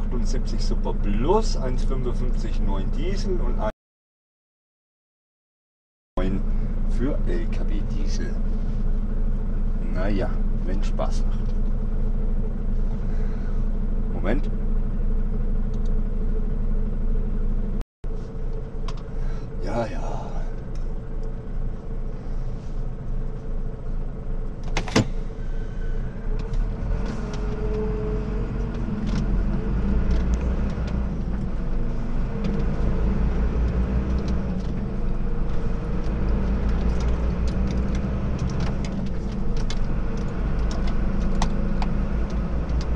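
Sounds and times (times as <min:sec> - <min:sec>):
lorry diesel engine running: 0:06.2 - 0:42.9.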